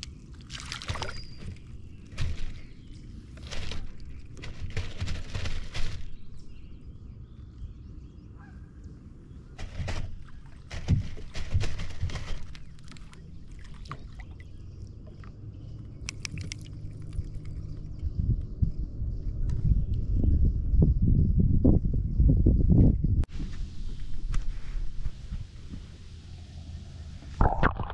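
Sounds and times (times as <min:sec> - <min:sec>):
water splashing: 0:00.0 - 0:02.6, 0:27.4 - 0:27.9.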